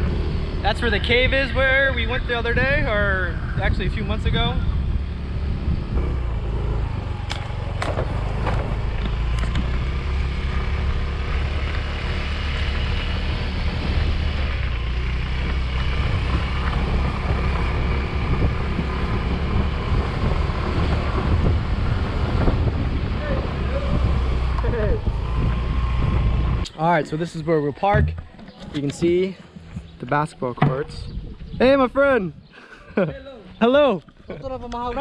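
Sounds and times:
wind on microphone: 0.0s - 11.6s, 12.9s - 26.7s, 27.8s - 32.5s
motorcycle engine running: 4.4s - 26.6s
sharp knocks: 27.9s - 28.6s.

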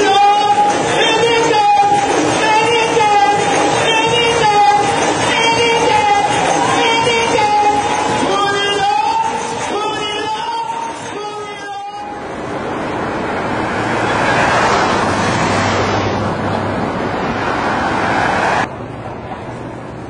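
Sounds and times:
street traffic: 0.0s - 20.0s
van driving past: 12.2s - 19.5s.

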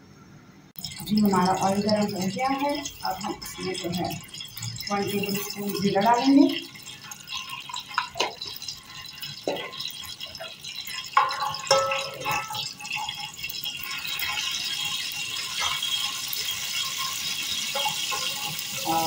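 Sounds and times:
seeds sizzling in hot oil: 0.8s - 19.0s.

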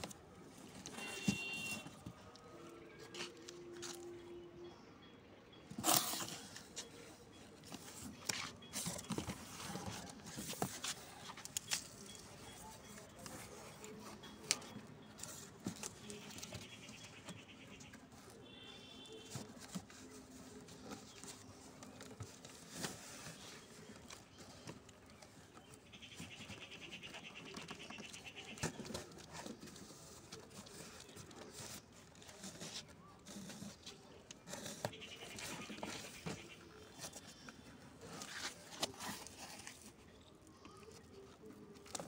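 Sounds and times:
cardboard box rustling and knocking: 0.7s - 2.2s.

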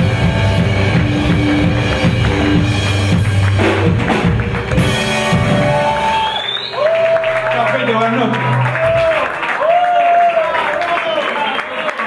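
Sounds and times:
drum and cymbal hits: 0.0s - 6.2s
rockabilly band playing: 0.0s - 9.4s.

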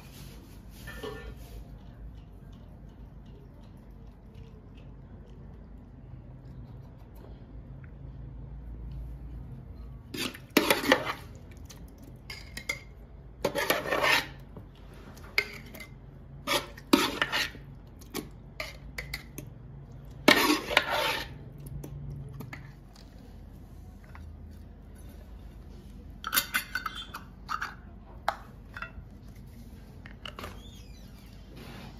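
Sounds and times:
glass jar scraping in metal pot: 0.7s - 1.6s, 13.4s - 14.4s, 15.4s - 17.6s, 20.2s - 21.4s.

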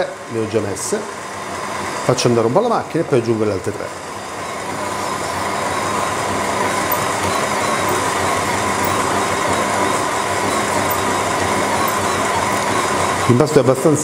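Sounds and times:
stand mixer motor humming: 0.0s - 14.0s.

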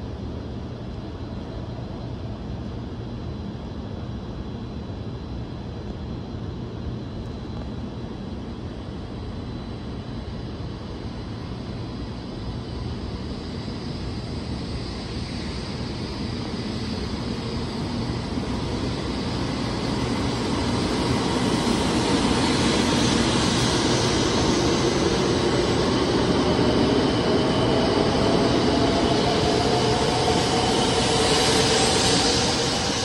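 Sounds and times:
train approaching rumble: 9.2s - 33.0s.

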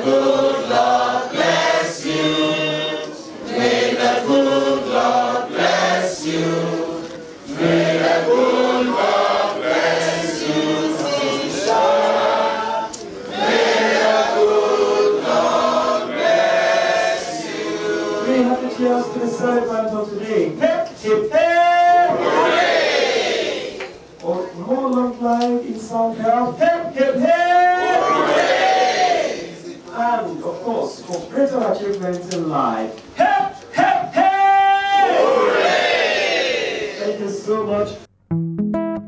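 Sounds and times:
choir singing: 0.0s - 19.1s, 22.1s - 23.8s.

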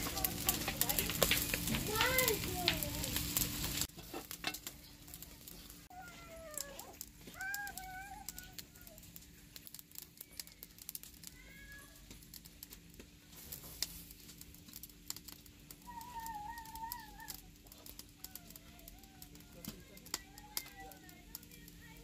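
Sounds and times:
animal wavering calls: 15.8s - 17.5s.

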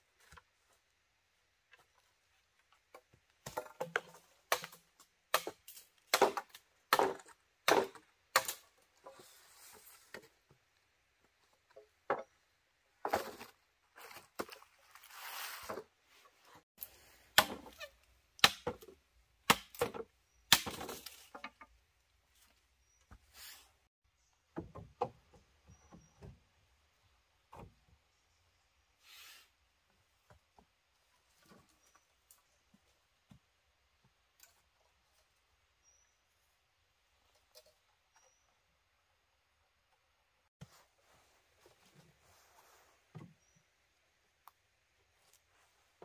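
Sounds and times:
chopping strikes on wood: 3.4s - 8.6s, 17.4s - 17.8s, 18.4s - 21.0s.

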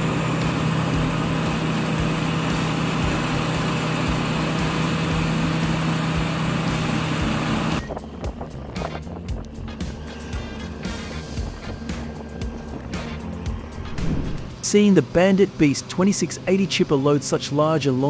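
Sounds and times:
wood chipper engine drone: 0.0s - 18.0s.

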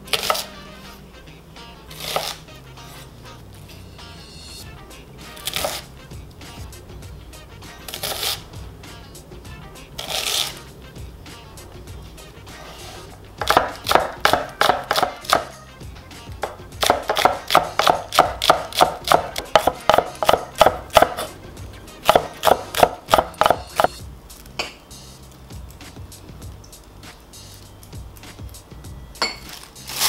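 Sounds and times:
knife chopping on wooden board: 2.0s - 2.4s, 5.4s - 5.8s, 12.6s - 15.5s, 16.4s - 21.4s, 22.0s - 24.0s.

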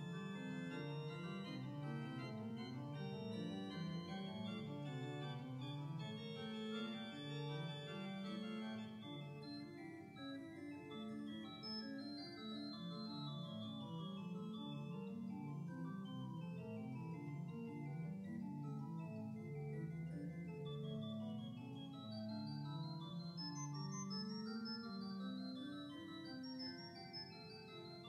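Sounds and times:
organ playing slow chords: 0.2s - 9.4s.

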